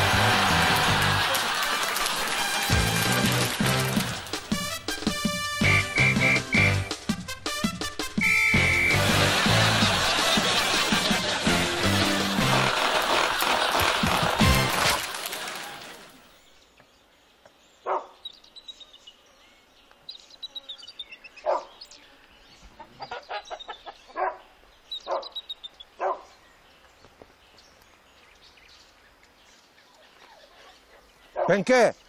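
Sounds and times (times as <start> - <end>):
music: 0.0 - 1.4, 2.2 - 13.0, 14.1 - 14.8
birds chirping: 3.6 - 7.1, 8.0 - 11.9, 15.4 - 32.0
dog barking: 17.8 - 18.2, 21.4 - 21.7, 24.1 - 25.4, 26.0 - 26.4, 30.5 - 31.6.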